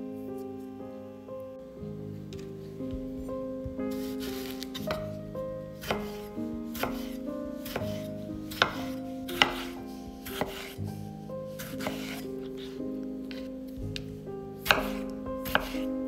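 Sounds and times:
knife slicing tomato: 5.8s - 10.8s, 11.6s - 13.5s, 14.6s - 15.9s.

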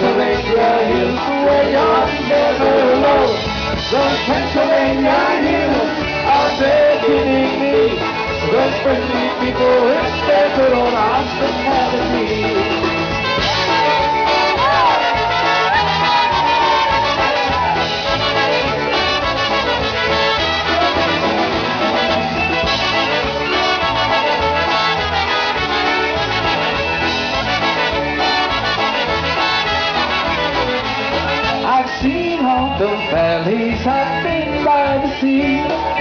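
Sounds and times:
trumpets and clarinet melody: 0.0s - 33.4s
drums steady beat: 0.0s - 36.0s
polka band playing: 0.0s - 36.0s.

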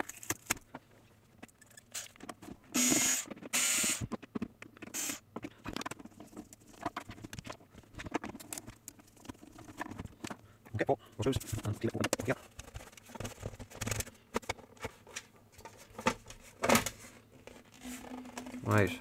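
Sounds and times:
plastic case being handled: 4.1s - 10.4s, 11.2s - 19.0s.

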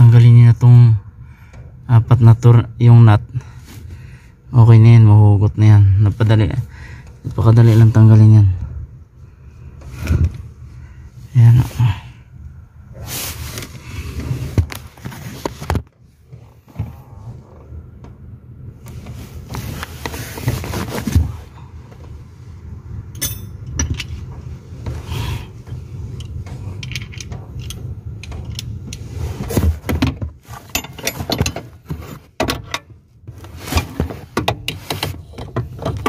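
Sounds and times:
low handling rumble: 6.6s - 31.9s
socket wrench clicking and clinking: 23.1s - 24.2s, 26.2s - 28.8s.

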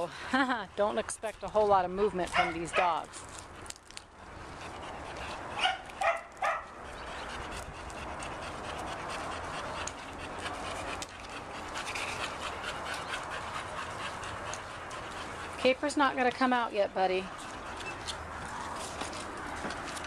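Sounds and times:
dog barking: 2.3s - 3.0s, 5.6s - 6.7s.

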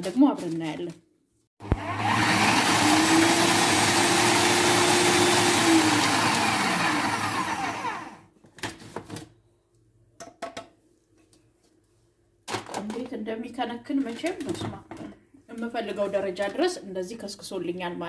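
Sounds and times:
food processor motor grinding: 1.6s - 8.2s.

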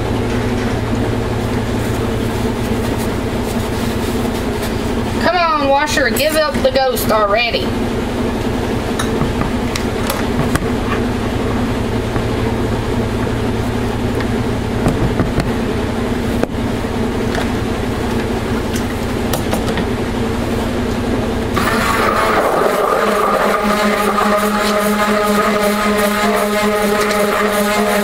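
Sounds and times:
washing machine humming: 0.0s - 28.0s
stick blender motor whine: 21.6s - 28.0s.

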